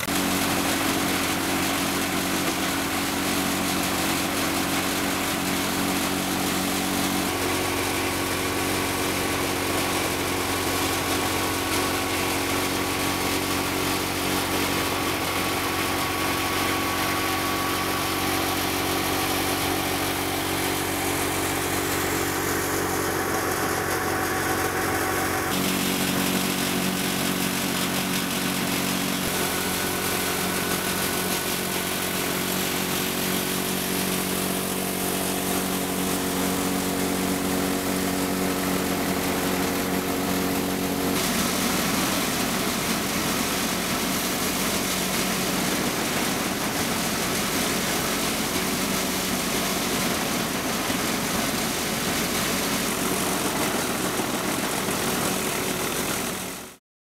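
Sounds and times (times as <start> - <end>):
thresher rushing noise: 0.0 - 56.8
tractor diesel engine humming: 15.2 - 44.8, 52.4 - 56.6.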